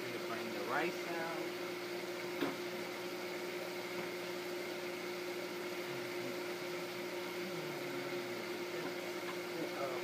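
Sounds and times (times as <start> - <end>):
kitchen exhaust fan humming: 0.0 - 10.0.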